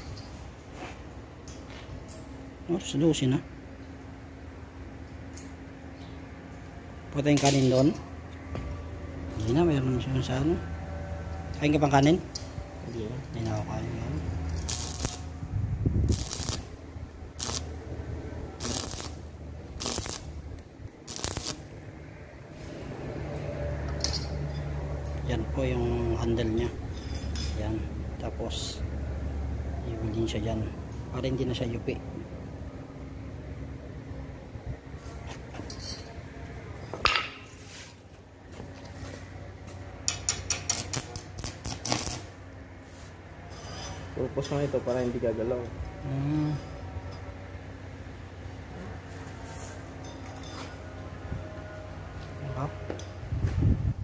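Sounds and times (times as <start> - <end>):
pliers clinking on metal grill: 7.2 - 8.0, 26.3 - 27.8, 35.5 - 36.2
arc welder crackling: 13.1 - 23.5, 40.1 - 42.5.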